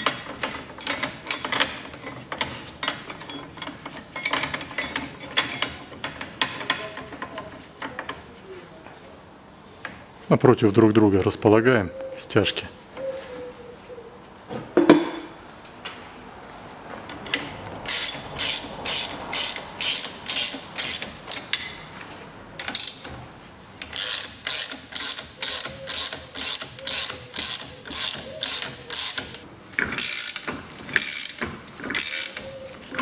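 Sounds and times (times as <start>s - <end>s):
ratchet wrench clicking: 17.9s - 21.6s, 22.6s - 23.1s, 23.8s - 29.4s, 30.0s - 31.4s, 32.0s - 32.5s.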